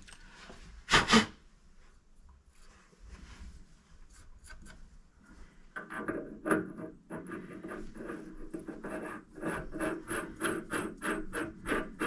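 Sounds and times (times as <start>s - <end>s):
metal rubbing and scraping: 5.8s - 12.0s.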